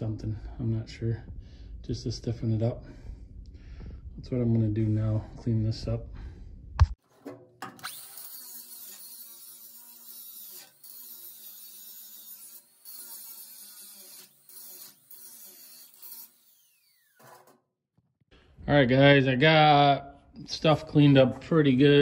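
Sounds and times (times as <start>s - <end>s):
angle grinder grinding metal: 7.0s - 17.6s.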